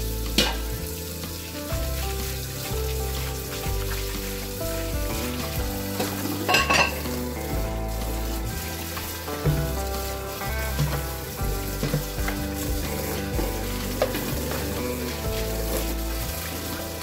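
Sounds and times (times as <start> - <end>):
background music: 0.0 - 17.0
water running and splashing: 0.0 - 17.0
dishes clattering: 5.9 - 7.3.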